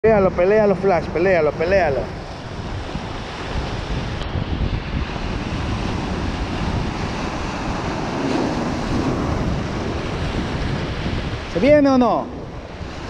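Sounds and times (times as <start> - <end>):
ocean surf washing: 0.0 - 13.0
wind buffeting microphone: 0.0 - 13.0.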